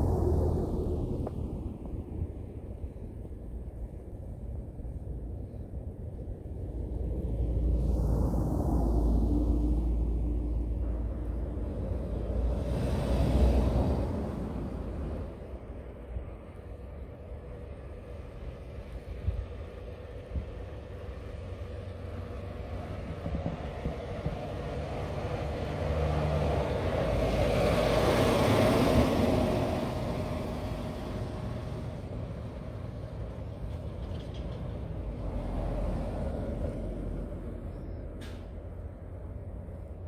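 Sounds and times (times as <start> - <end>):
vehicle driving past on snow: 6.5 - 16.9, 18.2 - 39.7.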